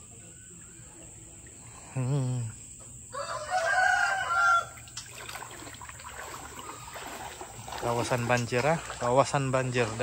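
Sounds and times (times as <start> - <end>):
rooster crowing: 3.1 - 5.0.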